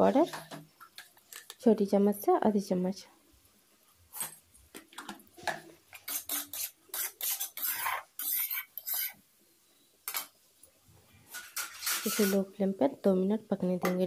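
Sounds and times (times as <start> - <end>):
metal spatula scraping in a pan: 6.0 - 9.2, 11.2 - 12.5.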